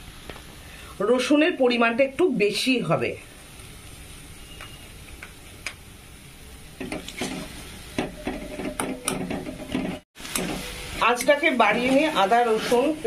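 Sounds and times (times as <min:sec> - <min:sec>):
paste sizzling in oil: 0:00.0 - 0:08.6, 0:09.6 - 0:13.0
metal spatula scraping a pan: 0:06.8 - 0:07.7, 0:08.3 - 0:13.0.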